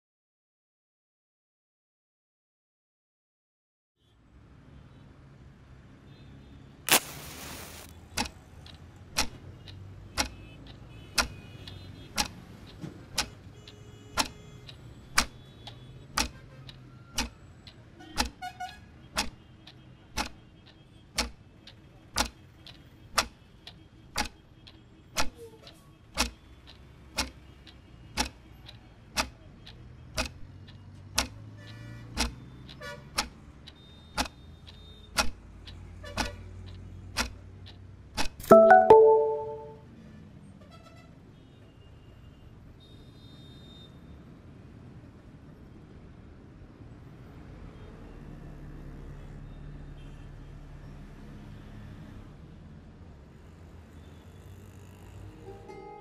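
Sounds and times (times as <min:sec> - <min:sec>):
loud short noise burst: 0:06.9 - 0:07.8
clock ticking: 0:08.2 - 0:13.3, 0:19.2 - 0:25.3, 0:26.2 - 0:31.4, 0:32.1 - 0:39.8.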